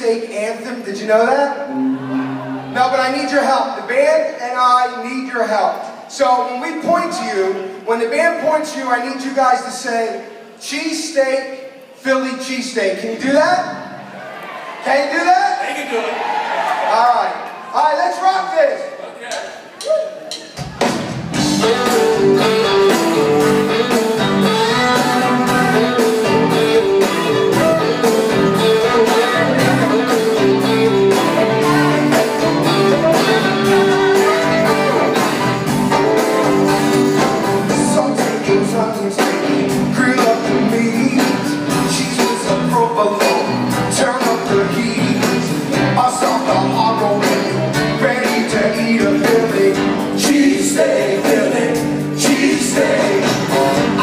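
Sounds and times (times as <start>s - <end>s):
electric guitars: 1.6s - 2.8s, 20.8s - 54.0s
drum beat: 19.3s - 40.7s.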